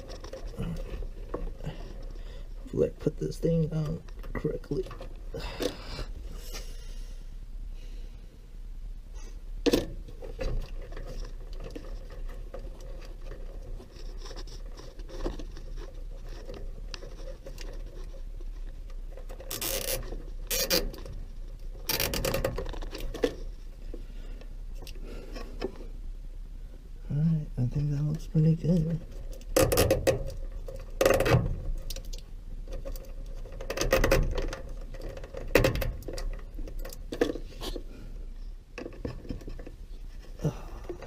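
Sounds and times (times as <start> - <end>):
wires rubbing and scraping: 0.0 - 6.9, 10.0 - 26.0, 27.1 - 41.0
steady low hum: 0.0 - 41.0
sharp clicks and knocks: 9.6 - 24.0, 28.7 - 37.8.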